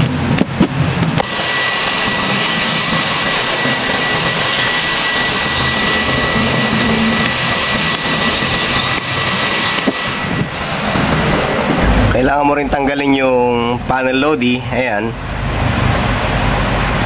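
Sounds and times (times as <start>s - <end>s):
electric blower whining hiss: 1.2s - 12.2s.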